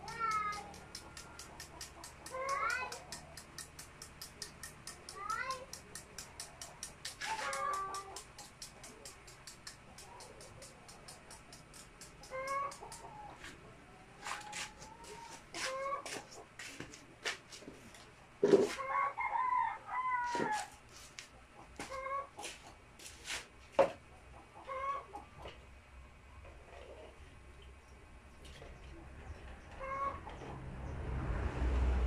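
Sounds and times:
sharp clicks and taps: 0:00.0 - 0:13.2
chickens clucking: 0:00.0 - 0:17.0, 0:18.3 - 0:22.8, 0:24.0 - 0:25.7, 0:26.4 - 0:30.6
rooster crowing: 0:18.9 - 0:20.8.

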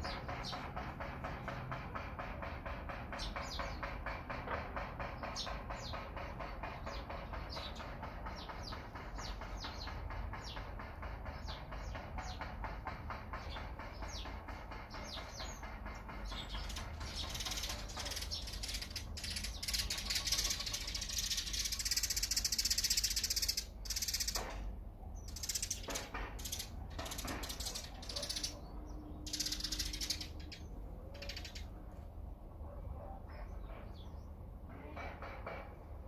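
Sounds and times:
songbirds chirping: 0:00.0 - 0:35.1.

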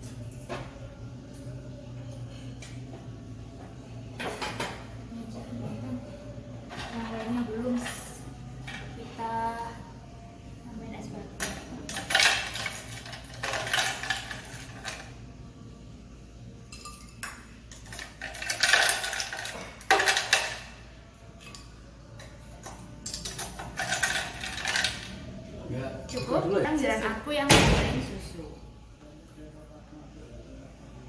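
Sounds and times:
cutlery clinking on ceramic dishes: 0:16.7 - 0:20.6.

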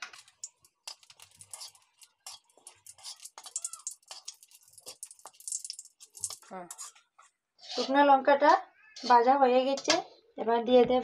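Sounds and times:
chillies sizzling in hot oil: 0:00.0 - 0:08.2
spatula stirring: 0:00.0 - 0:08.2, 0:08.9 - 0:09.9.

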